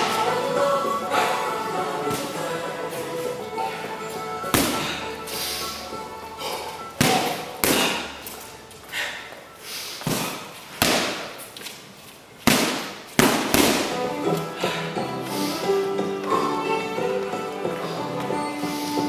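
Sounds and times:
background music: 0:00.0 - 0:11.3, 0:13.2 - 0:19.0
punches thudding on punching bag: 0:07.0 - 0:08.0, 0:10.0 - 0:11.4, 0:12.4 - 0:14.0.

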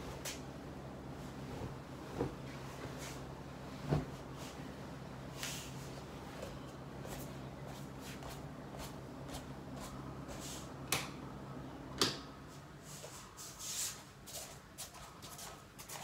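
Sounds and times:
low steady hum: 0:00.0 - 0:16.0
bedding rustling: 0:01.0 - 0:10.7.

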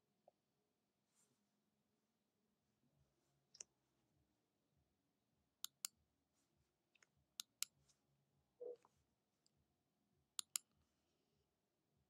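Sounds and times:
computer mouse clicking: 0:07.0 - 0:07.8, 0:10.4 - 0:10.7.

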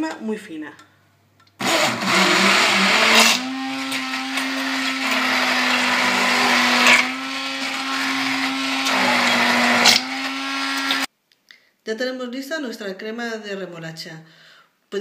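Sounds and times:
immersion blender running: 0:01.6 - 0:11.1.

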